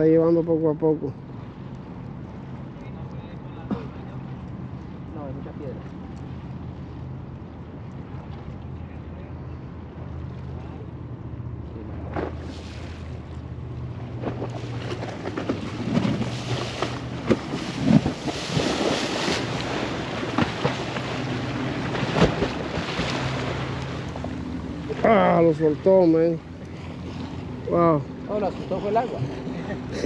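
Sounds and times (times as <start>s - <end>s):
boat engine drone: 0.0s - 30.0s
water splashing at shore: 11.6s - 30.0s.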